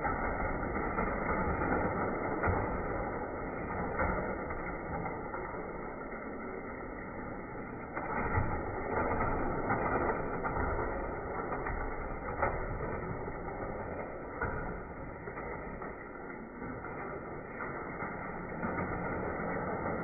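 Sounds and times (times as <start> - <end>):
toy cars rolling on track: 0.0 - 20.0.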